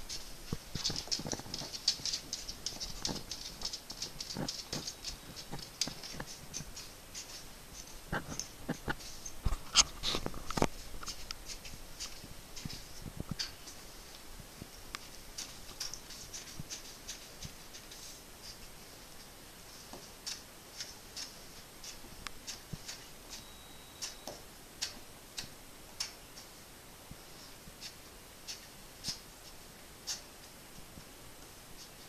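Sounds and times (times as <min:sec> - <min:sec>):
faint light clicks and ticks: 0:00.0 - 0:19.3.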